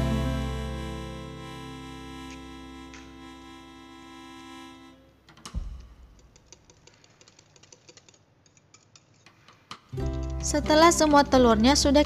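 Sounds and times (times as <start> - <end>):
background music: 0.0 - 3.4, 10.0 - 12.0
thump: 5.5 - 6.1.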